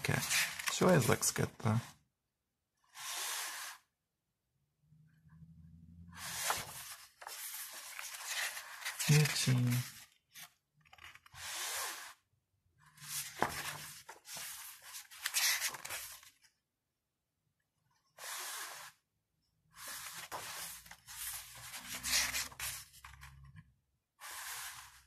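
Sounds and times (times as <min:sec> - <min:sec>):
pages turning and rustling: 0:00.0 - 0:01.4, 0:06.2 - 0:12.2, 0:12.9 - 0:16.5, 0:19.8 - 0:23.6.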